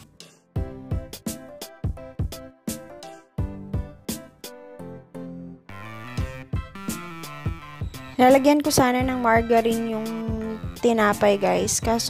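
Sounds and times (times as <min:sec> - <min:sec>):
background music with steady beat: 0:00.0 - 0:12.0.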